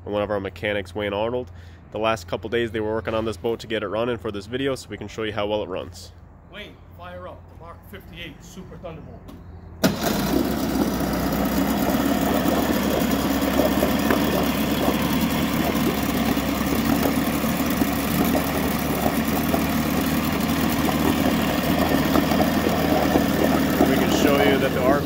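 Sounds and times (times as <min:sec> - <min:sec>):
two-stroke outboard motor idling: 0:09.8 - 0:25.0.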